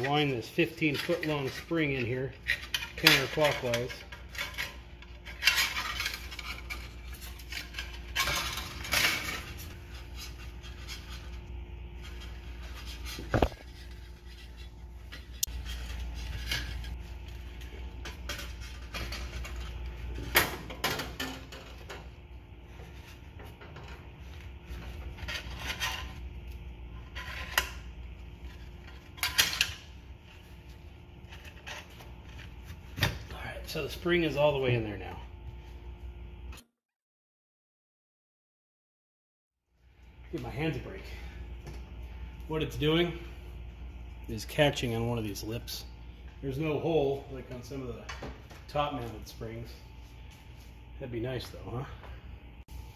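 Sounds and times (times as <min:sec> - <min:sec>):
metal spring clinking and scraping: 0:00.0 - 0:11.2.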